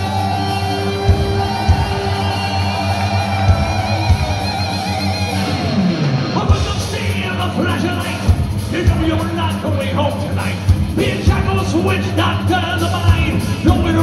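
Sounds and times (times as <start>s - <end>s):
long wavering guitar notes: 0.0s - 7.4s
bass guitar: 0.0s - 14.0s
distorted electric guitars: 0.0s - 14.0s
drums: 0.0s - 14.0s.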